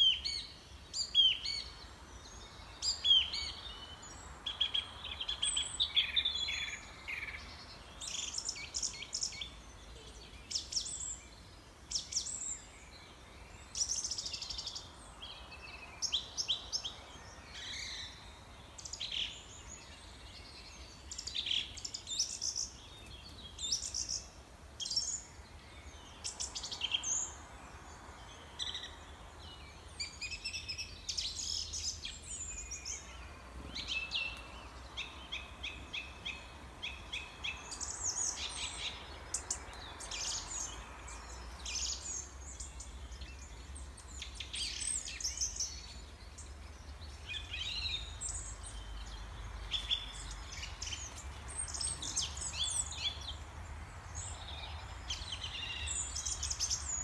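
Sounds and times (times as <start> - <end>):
songbirds chirping and singing: 0.0 - 57.0.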